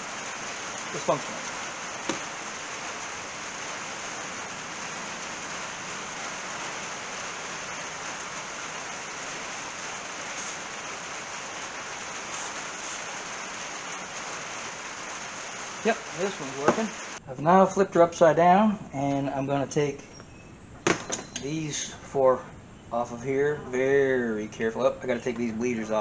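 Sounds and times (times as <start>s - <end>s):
rain on roof: 0.0s - 17.2s.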